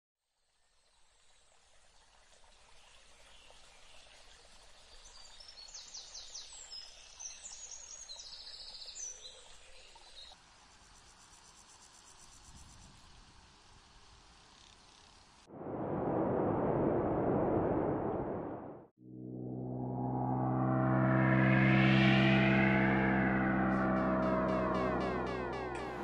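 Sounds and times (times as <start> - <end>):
insects buzzing: 10.4 - 15.5.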